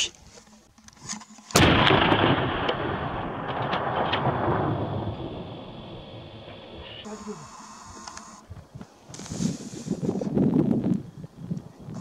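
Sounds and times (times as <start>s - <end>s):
rifle shot with rolling echo: 1.5s - 6.9s.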